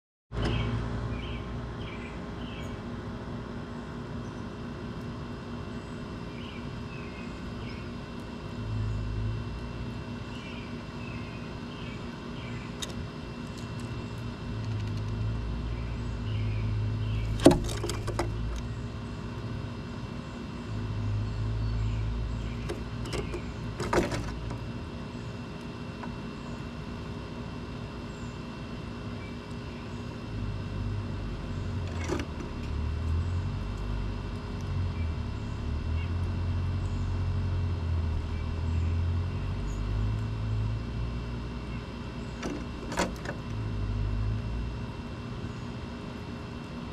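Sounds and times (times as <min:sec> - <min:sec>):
birds knocking on wooden feeder: 0:17.3 - 0:18.7, 0:22.6 - 0:24.6.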